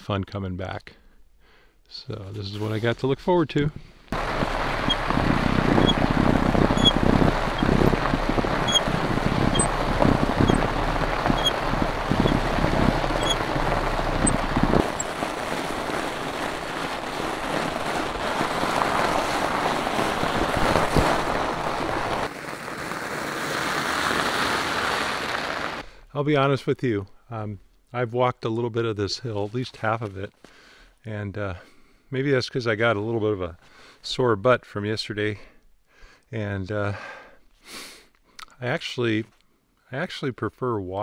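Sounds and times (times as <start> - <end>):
snow crunching underfoot: 4.1 - 25.8
wind rumbling on microphone: 4.1 - 25.8
bike tyres rolling over snow: 4.1 - 26.0.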